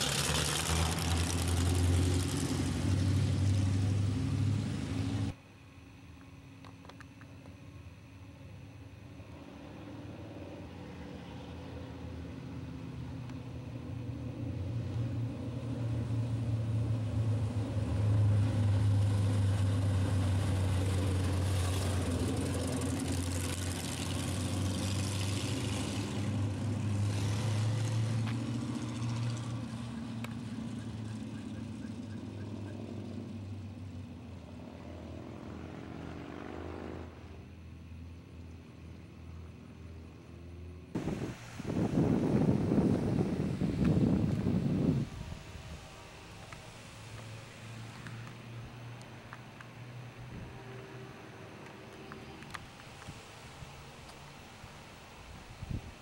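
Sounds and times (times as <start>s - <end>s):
car engine driving by: 0.0s - 5.4s, 9.2s - 38.2s
car engine revving: 0.0s - 5.4s, 15.7s - 37.4s.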